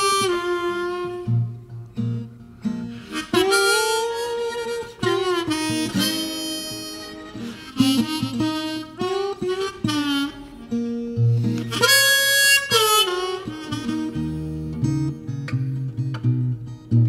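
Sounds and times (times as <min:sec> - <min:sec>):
harmonica bending notes: 0:00.0 - 0:17.0
plucked acoustic guitar: 0:00.0 - 0:17.0.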